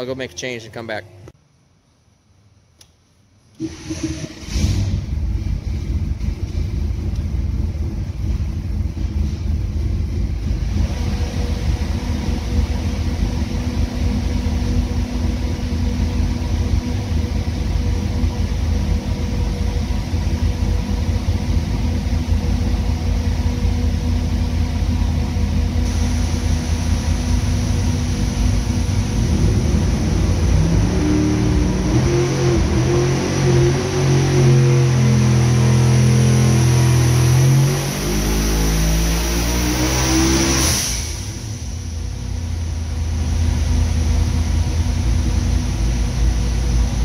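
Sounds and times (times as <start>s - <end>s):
engine rumbling and revving: 3.6s - 47.0s.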